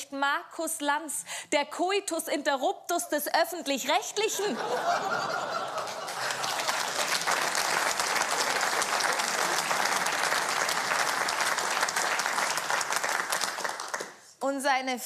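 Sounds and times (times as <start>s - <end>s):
audience laughing: 4.3s - 11.1s
audience applauding: 5.0s - 14.3s.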